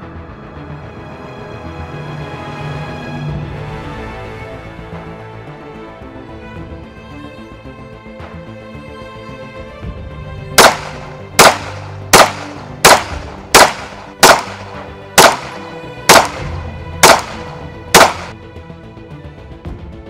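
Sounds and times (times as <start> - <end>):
background music: 0.0 - 20.0
pistol shots: 10.6 - 18.4.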